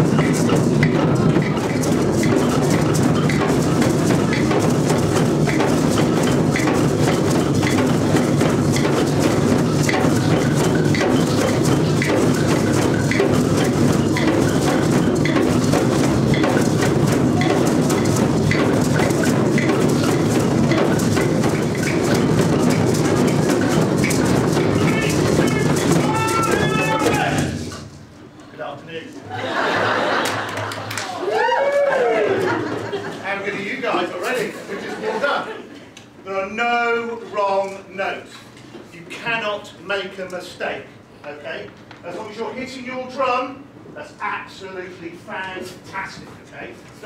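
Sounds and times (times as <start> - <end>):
hand drums playing together: 0.0 - 28.0.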